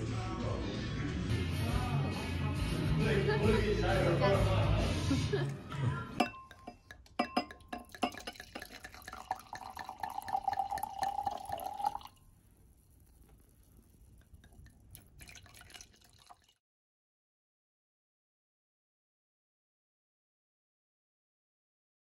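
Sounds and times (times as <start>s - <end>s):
glass clinks: 6.2s - 12.2s
glass ringing: 6.2s - 12.2s
wine pouring into glass: 6.2s - 12.4s, 14.2s - 16.6s.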